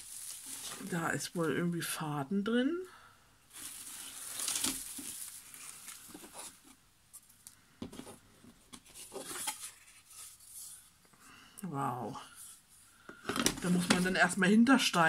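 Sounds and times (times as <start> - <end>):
hands rustling dry wood-wool packing: 0.0 - 1.5, 3.5 - 10.8
light knocks and scrapes of pieces: 4.4 - 10.8.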